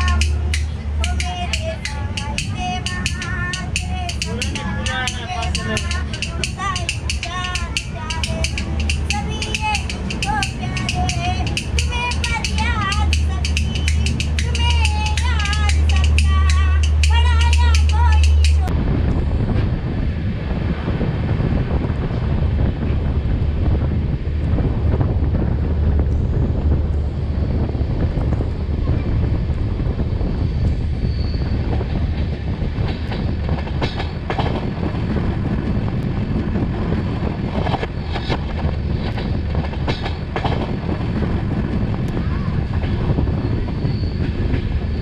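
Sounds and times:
wheels clacking over rail joints: 0:00.0 - 0:18.7, 0:31.3 - 0:45.0
train wheels rumbling on rail: 0:00.0 - 0:45.0.

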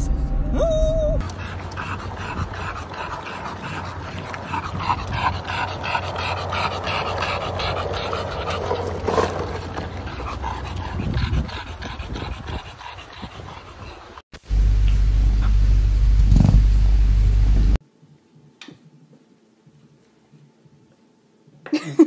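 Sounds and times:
dog panting: 0:01.2 - 0:14.2
skateboard wheels rumbling on asphalt: 0:06.4 - 0:10.4.

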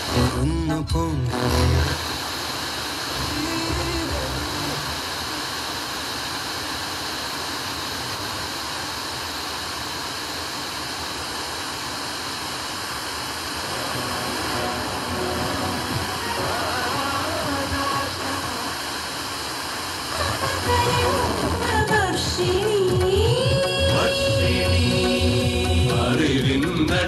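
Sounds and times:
faint radio station audio: 0:00.0 - 0:05.6, 0:13.5 - 0:27.0
radio static hiss: 0:00.0 - 0:27.0.

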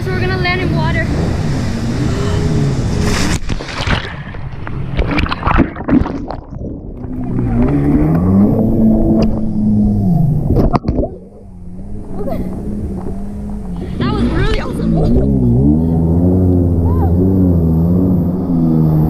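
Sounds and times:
motorboat engine drone: 0:00.0 - 0:03.5, 0:06.8 - 0:19.0
underwater splashing and bubbling: 0:00.1 - 0:13.9.

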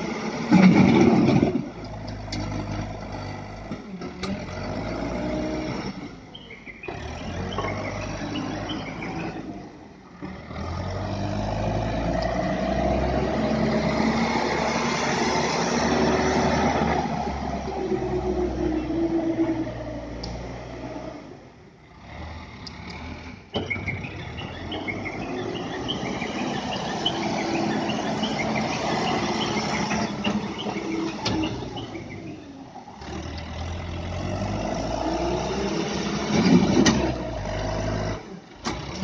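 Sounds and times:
backhoe loader diesel engine: 0:00.0 - 0:39.0.

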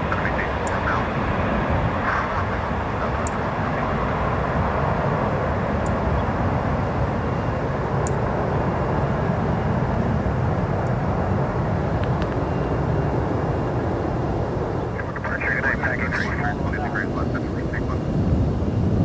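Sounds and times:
jet engines at climb power: 0:00.0 - 0:19.0.

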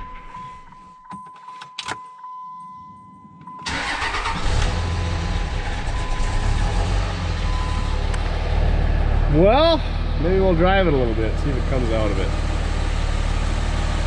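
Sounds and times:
diesel engine starting and idling: 0:03.6 - 0:14.0.

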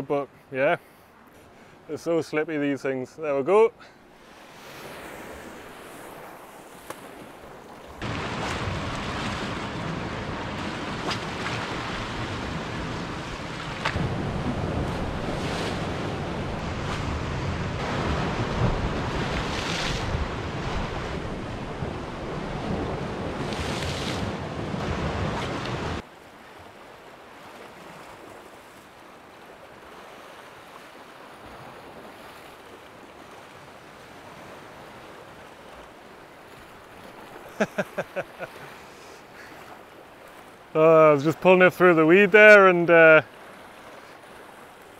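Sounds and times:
sea swell breaking on rocks: 0:04.4 - 0:26.0
wind buffeting microphone: 0:08.0 - 0:26.0.

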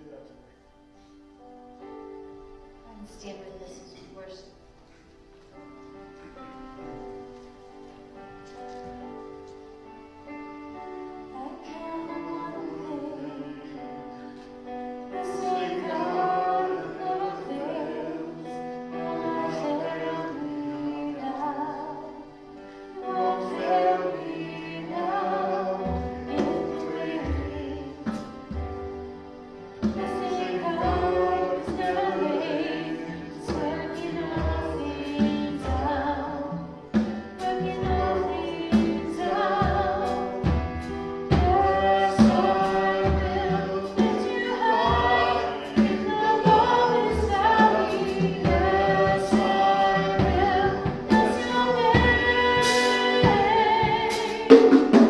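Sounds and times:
keyboard: 0:00.0 - 0:55.0
voices singing: 0:10.7 - 0:55.0
drum kit beat with cymbals: 0:25.9 - 0:55.0.

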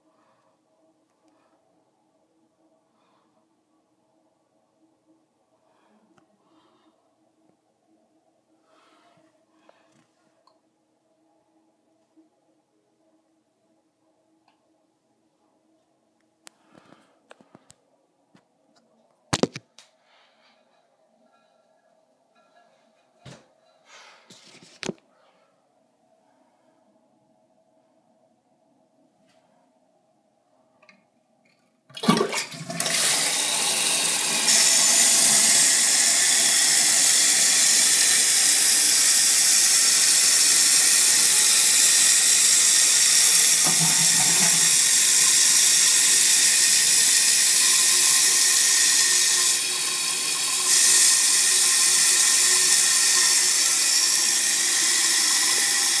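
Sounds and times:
toilet flush water rushing: 0:31.9 - 0:56.0
toilet tank refilling hiss: 0:32.0 - 0:56.0
toilet lever: 0:43.6 - 0:44.8.

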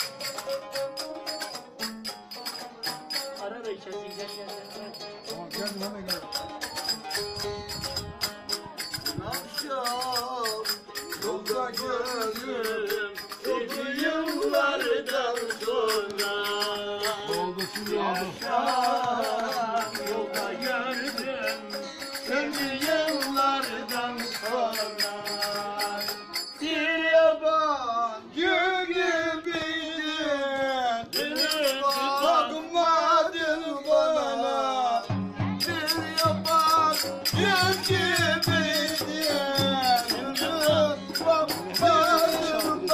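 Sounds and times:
strummed long-necked lute: 0:00.0 - 0:26.4
man singing folk song: 0:00.0 - 0:42.9.

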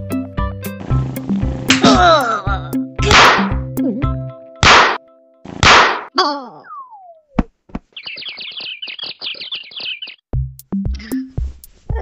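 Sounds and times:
cartoon smack: 0:01.7 - 0:02.0, 0:03.0 - 0:03.6, 0:04.6 - 0:06.1
rapid high tweeting chirps: 0:07.9 - 0:10.3.

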